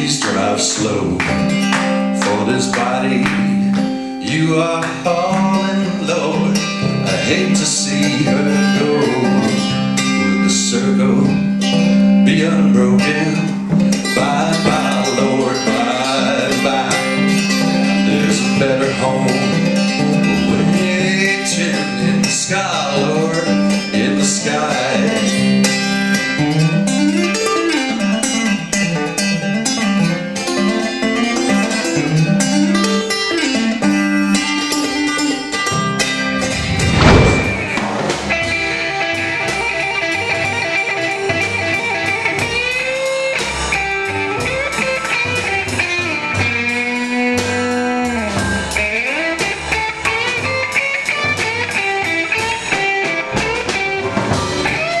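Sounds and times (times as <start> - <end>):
guitar solo with bent notes: 0.0 - 10.2, 24.6 - 55.0
guitar picking melodic run: 0.0 - 55.0
bass line: 36.4 - 38.5
loud thump: 36.4 - 38.5.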